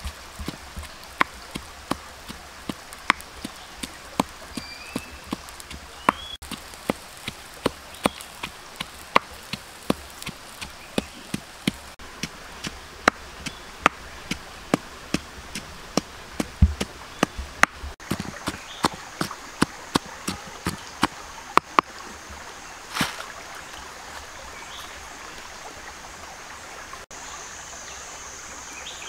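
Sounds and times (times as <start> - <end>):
pestle pounding in a mortar: 0.0 - 21.8
bird chirping: 3.3 - 6.6, 7.7 - 12.0.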